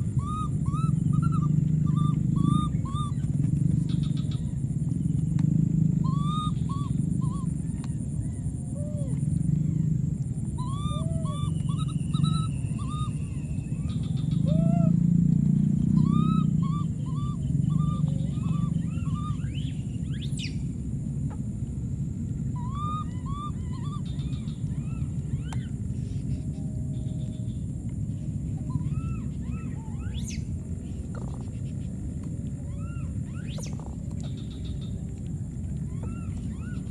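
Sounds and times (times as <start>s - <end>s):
baby monkey coo calls: 0.0s - 4.6s, 6.0s - 15.0s, 15.9s - 19.7s, 22.6s - 25.7s, 28.6s - 30.5s
steady low hum: 0.0s - 36.9s
steady low rumble: 0.0s - 36.9s
baby monkey crying: 0.1s - 3.3s, 6.0s - 7.5s, 10.6s - 13.1s, 22.6s - 25.0s.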